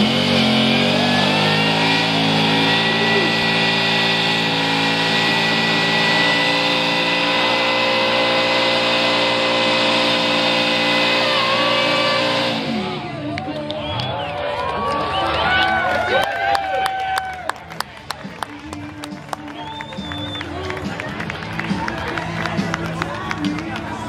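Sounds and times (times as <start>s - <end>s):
car engine revving: 0.0s - 14.2s
tires spinning: 0.0s - 24.0s.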